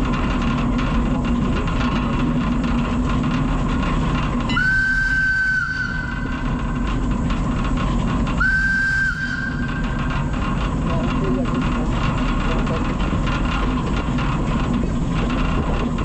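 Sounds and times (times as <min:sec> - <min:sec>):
tram running on rails: 0:00.0 - 0:16.0
steam whistle blasts: 0:04.5 - 0:06.5, 0:08.4 - 0:10.0.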